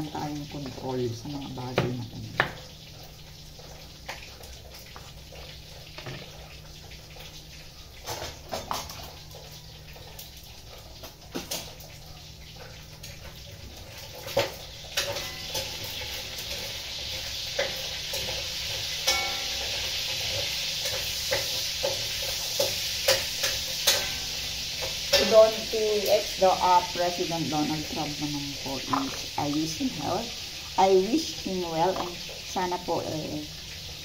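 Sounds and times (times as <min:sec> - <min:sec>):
food sizzling in a frying pan: 0:00.0 - 0:34.0
kitchen utensils and pots clinking: 0:05.8 - 0:06.6, 0:07.9 - 0:11.9, 0:12.5 - 0:33.2.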